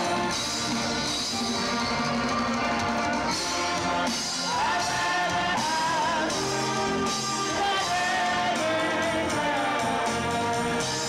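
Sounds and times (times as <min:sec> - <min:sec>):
church band with piano: 0:00.0 - 0:11.0
congregation singing: 0:03.2 - 0:11.0.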